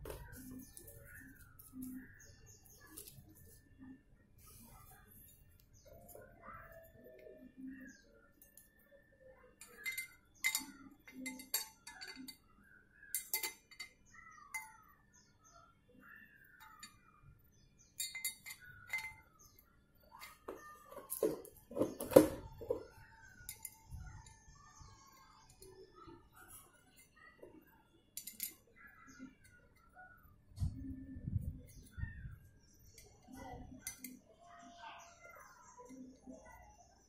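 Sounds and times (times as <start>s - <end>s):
birds chirping: 0.0s - 37.0s
metal bicycle parts clinking: 9.6s - 12.5s, 13.1s - 14.8s, 18.0s - 19.3s, 20.2s - 24.3s, 28.2s - 29.5s.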